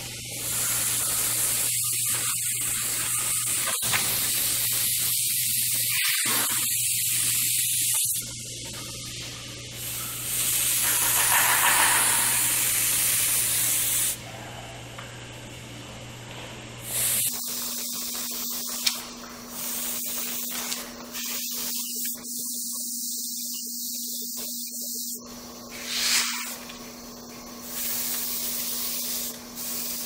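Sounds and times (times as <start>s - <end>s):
steady low hum: 8.2s - 30.0s
airbrush hissing: 9.8s - 14.2s, 16.8s - 20.5s, 21.1s - 30.0s.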